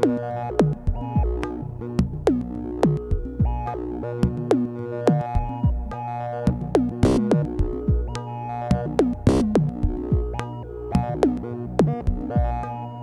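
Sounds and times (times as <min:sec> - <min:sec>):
noisy snare-like hits: 0:06.8 - 0:12.0.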